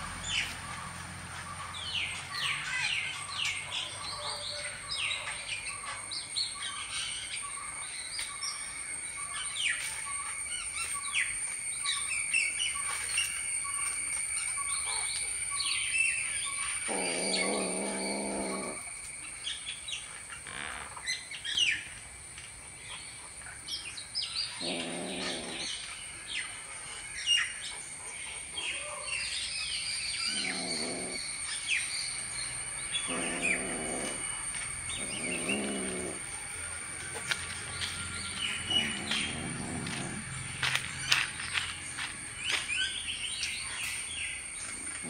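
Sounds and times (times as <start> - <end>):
birds chirping: 0.0 - 45.0
high insect whine: 0.0 - 45.0
kitten growling: 16.9 - 18.8, 24.6 - 25.7, 30.3 - 31.2, 33.0 - 34.3, 34.9 - 36.3.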